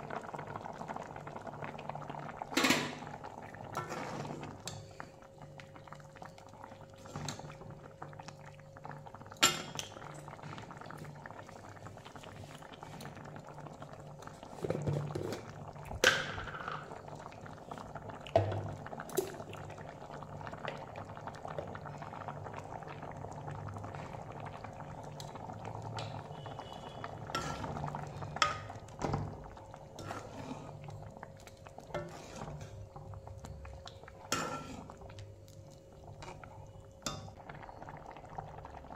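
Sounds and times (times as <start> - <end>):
curry bubbling: 0.0 - 38.9
ladle scraping a pan: 27.3 - 28.6, 29.9 - 30.9, 31.9 - 32.8, 34.3 - 35.0.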